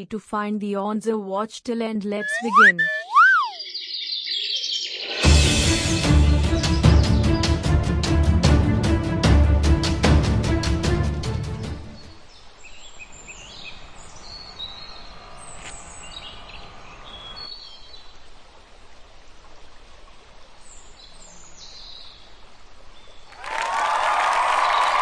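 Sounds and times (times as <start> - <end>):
birds chirping and whistling: 2.2 - 5.2, 12.6 - 17.6
outdoor background noise: 11.8 - 25.0.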